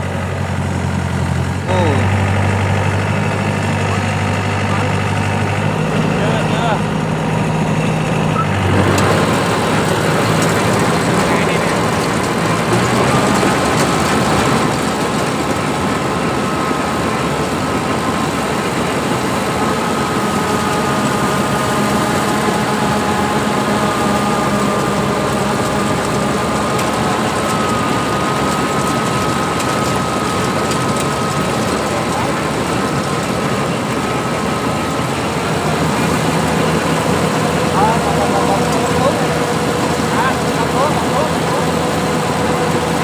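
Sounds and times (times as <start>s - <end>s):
combine harvester running: 0.0s - 43.0s
steady high whine: 0.0s - 43.0s.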